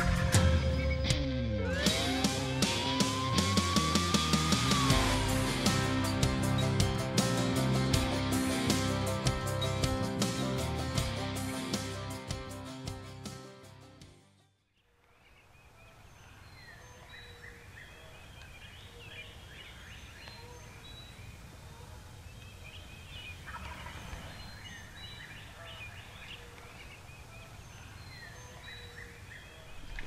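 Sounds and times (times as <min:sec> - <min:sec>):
songbirds chirping: 0:14.8 - 0:30.0
turkey gobbling: 0:23.4 - 0:24.3.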